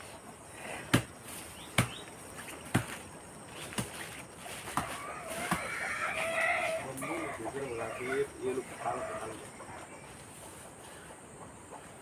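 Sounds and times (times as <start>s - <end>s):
machete chopping wood: 0.9s - 1.1s, 1.7s - 2.0s, 2.7s - 3.0s
fowl calling: 4.7s - 12.0s.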